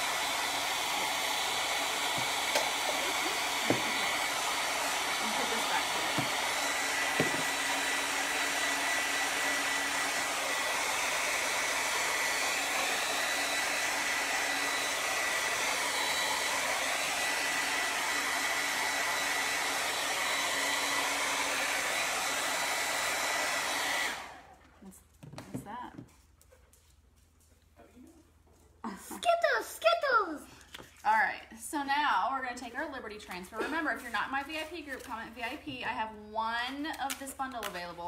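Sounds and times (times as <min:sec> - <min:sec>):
hot-air dryer blowing with whine: 0:00.0 - 0:24.6.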